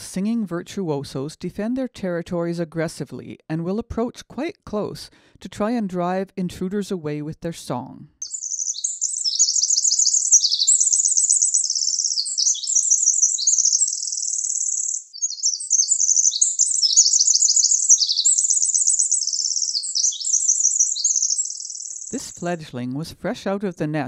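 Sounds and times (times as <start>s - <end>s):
wren singing trills: 8.2s - 23.0s.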